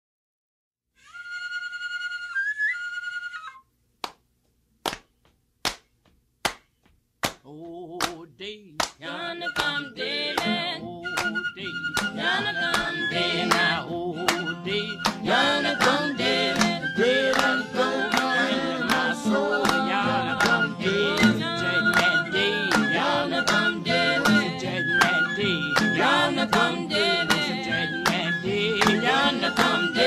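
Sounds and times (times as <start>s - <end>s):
hand clapping in steady beat: 4.0s - 4.2s, 4.8s - 9.0s, 9.6s - 30.0s
group of voices singing: 9.0s - 30.0s.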